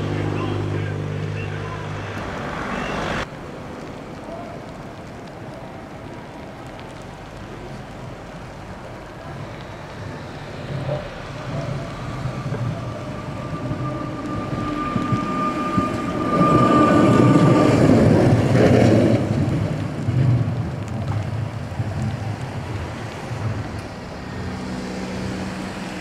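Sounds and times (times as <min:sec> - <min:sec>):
streetcar running past: 0:08.9 - 0:26.0
steady whine: 0:10.5 - 0:18.0.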